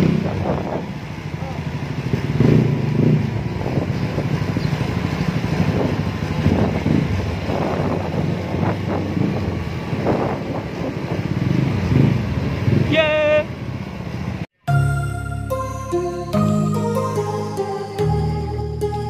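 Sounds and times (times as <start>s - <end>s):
scooter engine low exhaust note: 0.0s - 12.3s.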